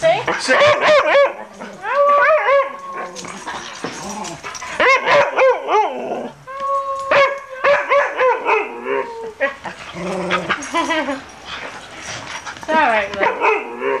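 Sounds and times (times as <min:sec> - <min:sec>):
dog howling: 0:00.6 - 0:10.6.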